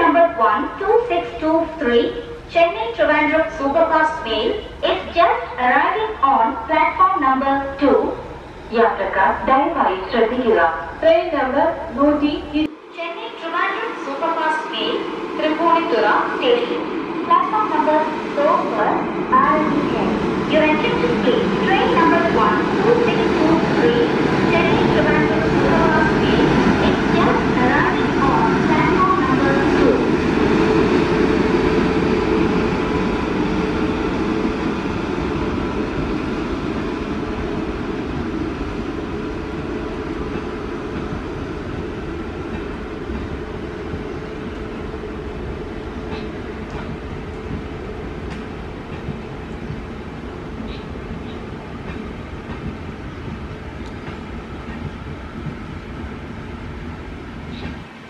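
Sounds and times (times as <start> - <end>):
train wheels rumbling on rails: 14.7 - 58.0.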